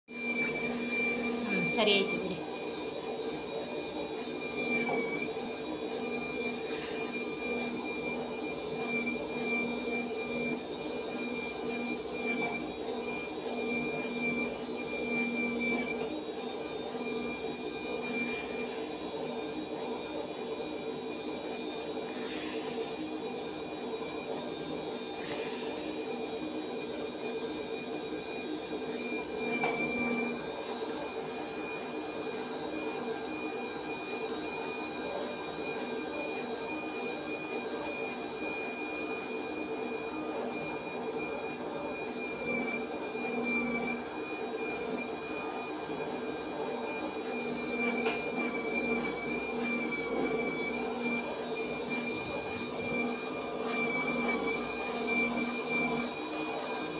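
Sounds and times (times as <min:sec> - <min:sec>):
machine motor whining: 0:00.1 - 0:56.9.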